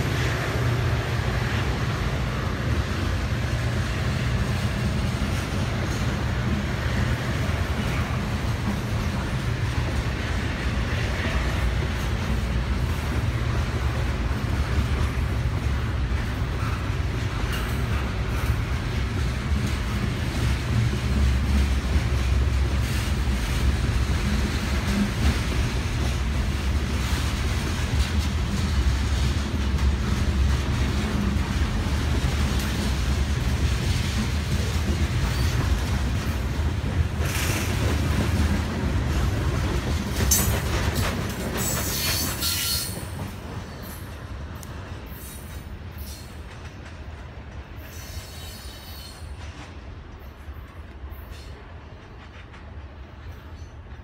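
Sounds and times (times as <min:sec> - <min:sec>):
train wheels rumbling on rail: 0:00.0 - 0:54.0
train wheels squealing: 0:35.2 - 0:35.7, 0:41.5 - 0:44.2, 0:45.0 - 0:46.5, 0:47.7 - 0:49.5, 0:50.1 - 0:51.7.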